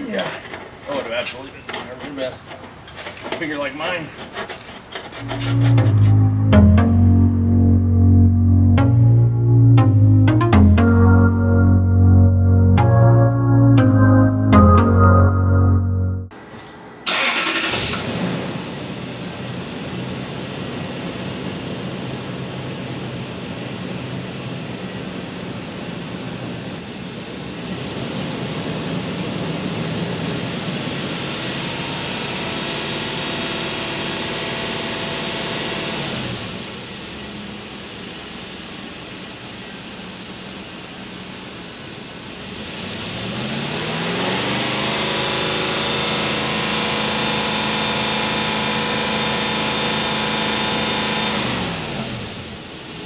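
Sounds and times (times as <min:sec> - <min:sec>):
car engine revving and idling: 0:05.1 - 0:09.2, 0:17.1 - 0:53.0.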